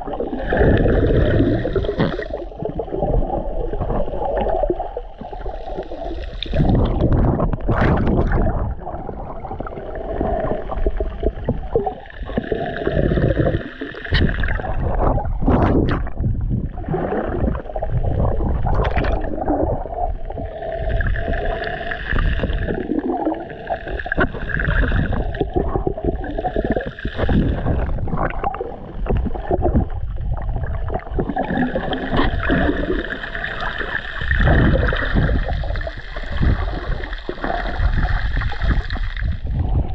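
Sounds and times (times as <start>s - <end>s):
muffled underwater sloshing: 0.0s - 39.9s.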